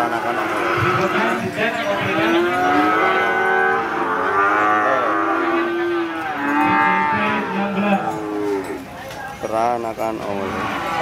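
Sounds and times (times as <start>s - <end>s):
cattle mooing: 0.0s - 8.8s.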